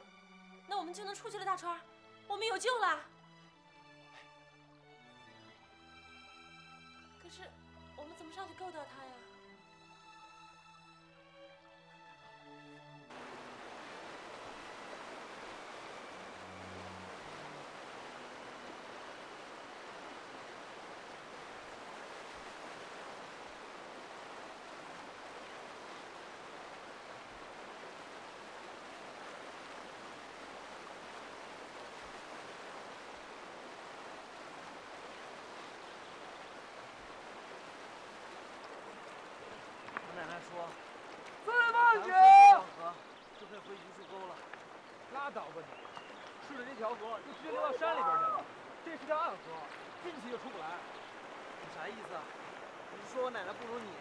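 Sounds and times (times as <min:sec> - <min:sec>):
river rushing: 0:13.1 - 0:54.0.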